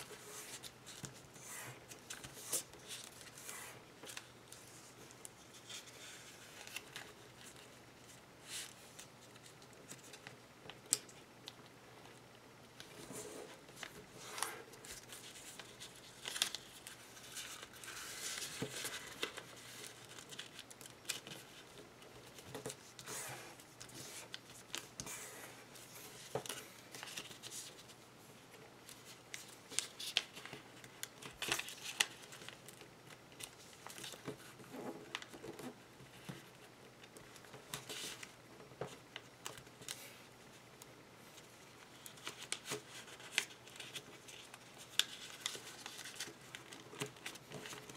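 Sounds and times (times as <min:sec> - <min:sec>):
paper rustling and crinkling: 0:00.0 - 0:11.2, 0:12.8 - 0:28.0, 0:28.6 - 0:40.6, 0:41.2 - 0:47.9
paper crackling: 0:12.8 - 0:28.0, 0:28.8 - 0:34.5, 0:41.8 - 0:47.9.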